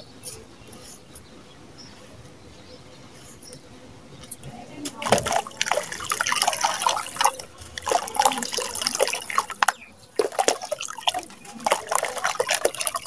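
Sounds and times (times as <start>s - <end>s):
grains splashing into water: 5.0s - 13.0s.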